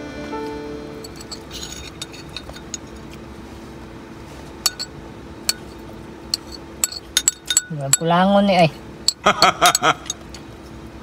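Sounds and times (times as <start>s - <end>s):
spoon scraping plastic bowl: 1.1s - 3.2s, 5.5s - 7.6s.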